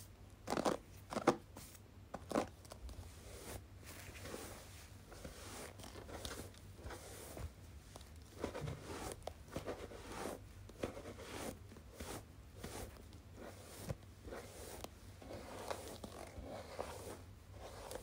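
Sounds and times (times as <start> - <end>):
hairbrush brushing strokes: 3.0 - 7.5, 8.4 - 18.0.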